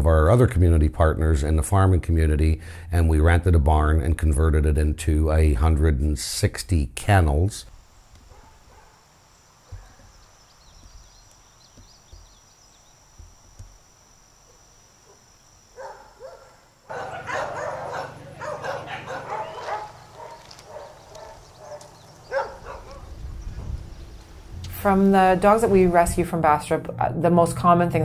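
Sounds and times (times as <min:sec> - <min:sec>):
dogs barking and yelping: 0:08.2 - 0:09.0, 0:14.5 - 0:23.2.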